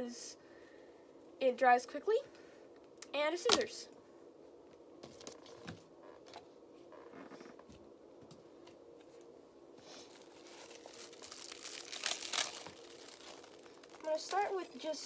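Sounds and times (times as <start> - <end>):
crinkly rustling: 9.9 - 15.0.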